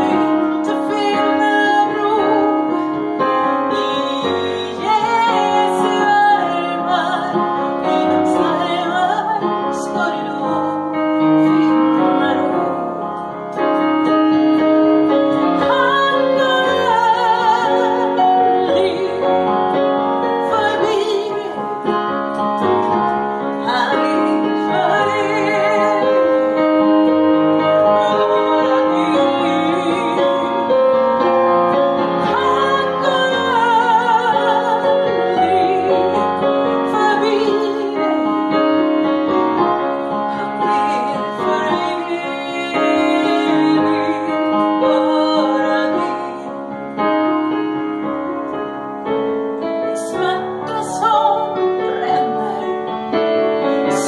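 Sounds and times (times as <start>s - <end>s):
woman singing with vibrato: 0.0s - 13.0s, 15.1s - 19.7s, 20.4s - 21.9s, 23.6s - 31.4s, 32.2s - 38.8s, 40.3s - 46.5s, 50.0s - 53.0s, 53.6s - 54.0s
piano accompaniment: 0.0s - 54.0s.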